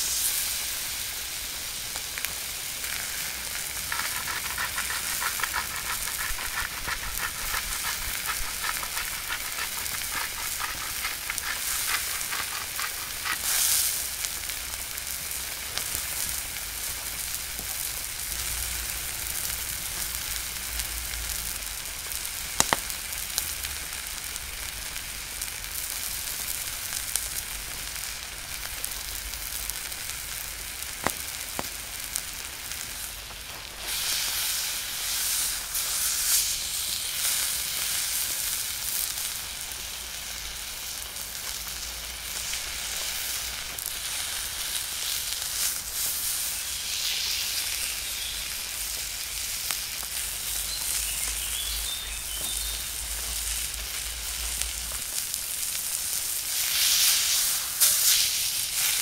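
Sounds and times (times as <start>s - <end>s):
steak sizzling in skillet: 0.0s - 59.0s
sharp pops of fat: 22.6s - 22.9s.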